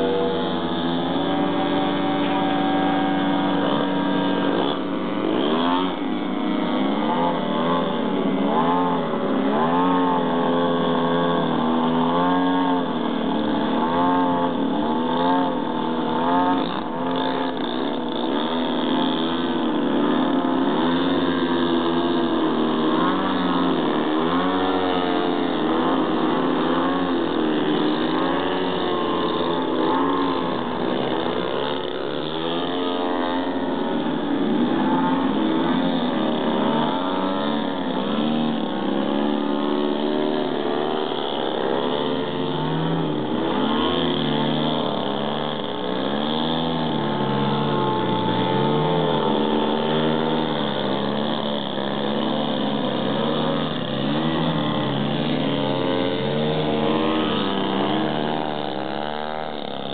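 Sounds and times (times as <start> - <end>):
model airplane engines: 0.0 - 59.9.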